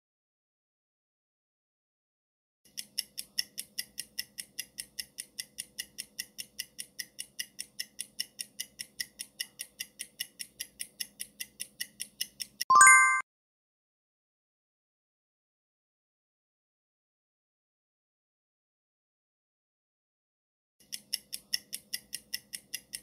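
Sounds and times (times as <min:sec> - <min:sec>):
clock-like ticking: 0:02.7 - 0:12.7, 0:20.8 - 0:23.0
bright chime: 0:12.7 - 0:13.2.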